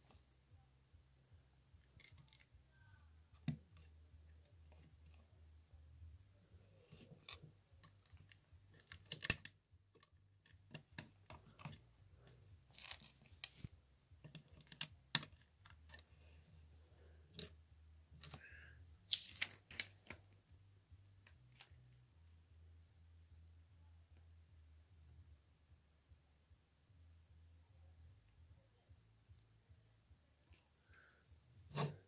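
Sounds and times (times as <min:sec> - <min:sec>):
plastic bricks clicking: 0:07.1 - 0:10.1, 0:14.2 - 0:16.0
plastic bricks snapping: 0:08.8 - 0:09.5.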